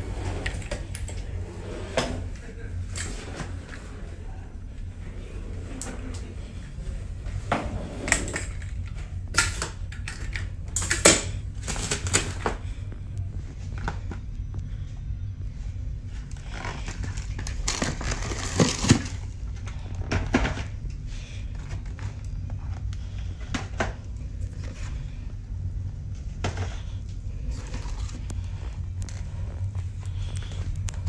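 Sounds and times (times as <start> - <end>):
steady low hum: 0.0 - 31.0
boxes and bottles rustling and knocking: 16.3 - 20.8.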